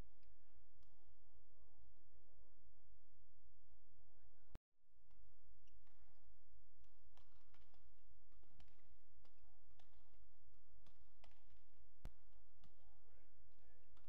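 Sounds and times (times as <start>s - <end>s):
rackets striking shuttlecock: 6.8s - 12.9s.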